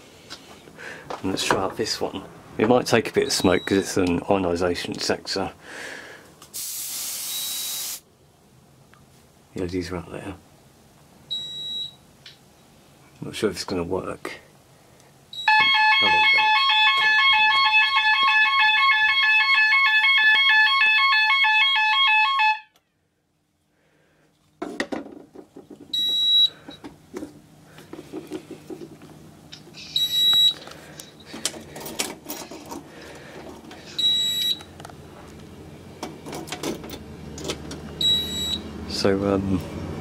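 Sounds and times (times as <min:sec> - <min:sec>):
two-tone fire alarm: 0:11.3 - 0:12.0, 0:15.4 - 0:22.8, 0:26.0 - 0:26.5, 0:29.9 - 0:30.6, 0:34.0 - 0:34.6, 0:38.0 - 0:38.6.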